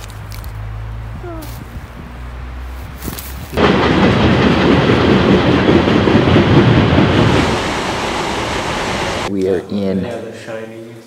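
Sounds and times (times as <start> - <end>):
vehicle rumble and rattle: 0.0 - 7.6.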